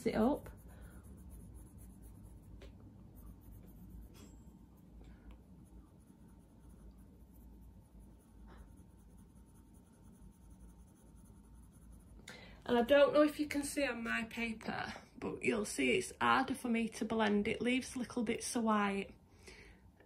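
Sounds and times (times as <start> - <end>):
pencil scratching on paper: 0.0 - 12.2.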